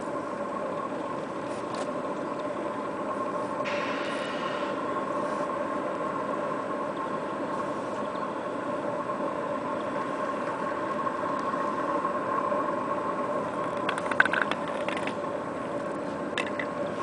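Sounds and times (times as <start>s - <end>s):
engine-like hum: 0.0s - 17.0s
sharp clicks and clatter: 13.6s - 15.2s, 16.4s - 16.8s.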